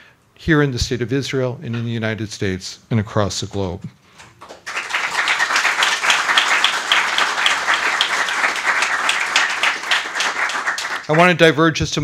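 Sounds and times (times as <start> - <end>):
audience applauding: 4.4 - 11.5.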